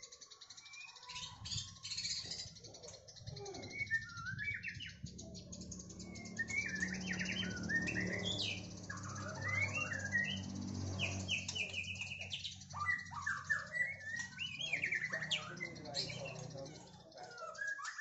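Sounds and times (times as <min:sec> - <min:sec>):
bird singing whistles: 0:03.4 - 0:05.2, 0:05.9 - 0:16.3, 0:17.2 - 0:18.0.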